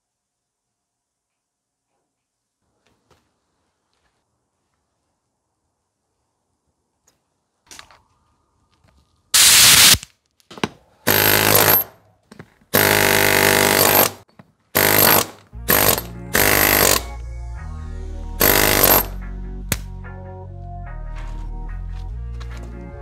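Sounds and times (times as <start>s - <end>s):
chipping hammer breaking concrete: 12.8s - 17.1s
background music: 14.9s - 23.0s.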